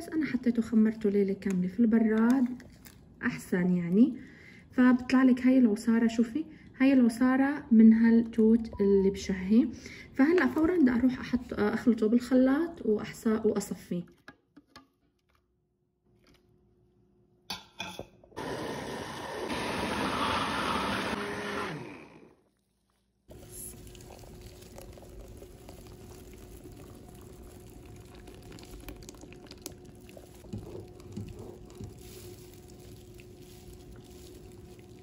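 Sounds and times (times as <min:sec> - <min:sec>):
electric blender running: 0:18.4 - 0:22.5
faint steady hum: 0:23.3 - 0:35.0.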